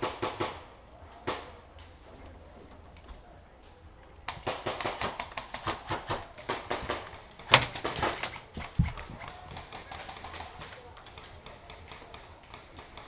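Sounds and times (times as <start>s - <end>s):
footsteps: 6.4s - 13.0s
gear clattering with clicks and knocks: 7.0s - 13.0s.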